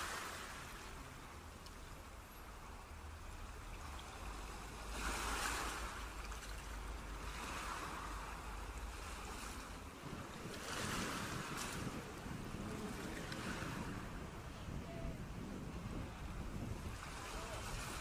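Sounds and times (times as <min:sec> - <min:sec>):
wind on microphone: 0:03.4 - 0:18.0.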